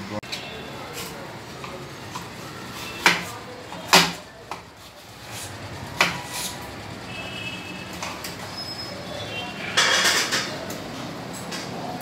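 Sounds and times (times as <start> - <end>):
hard objects knocking: 9.8 - 10.6.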